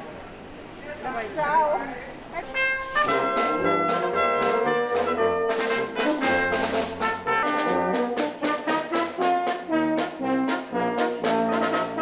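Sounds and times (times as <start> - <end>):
brass band playing: 2.4 - 12.0.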